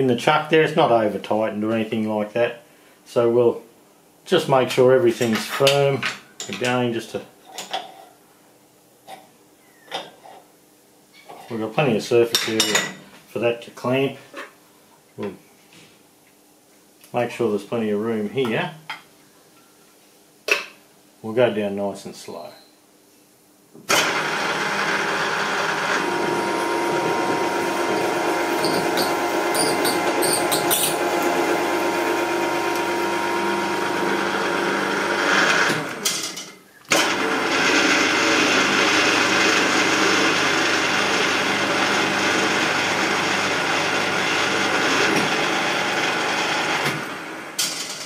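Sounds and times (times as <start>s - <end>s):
milling machine spindle humming: 24.0s - 36.1s.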